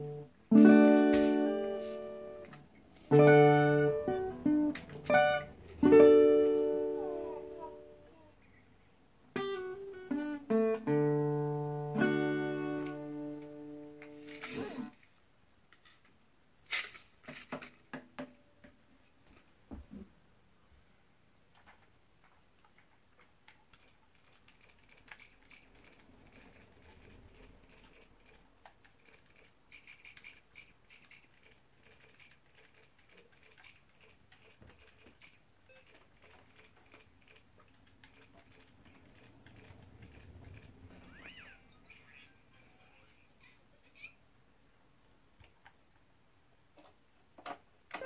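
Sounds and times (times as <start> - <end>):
plastic toys clicking: 16.7 - 18.0, 22.6 - 41.4.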